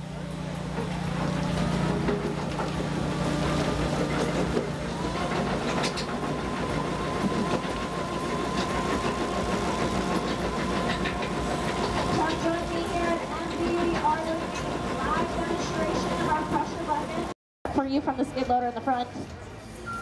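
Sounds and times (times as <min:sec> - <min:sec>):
diesel engine and hydraulic hum: 0:00.0 - 0:17.4.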